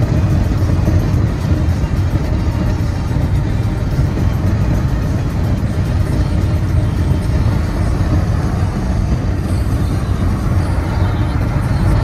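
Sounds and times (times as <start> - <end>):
music playing: 0.0 - 12.0
road and tyre noise in car: 0.0 - 12.0.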